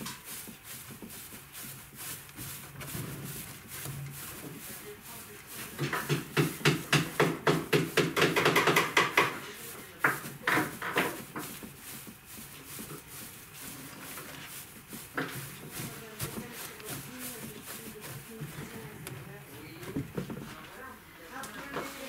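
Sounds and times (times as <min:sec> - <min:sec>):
hands rustling stuffing fibre: 0:00.0 - 0:22.0.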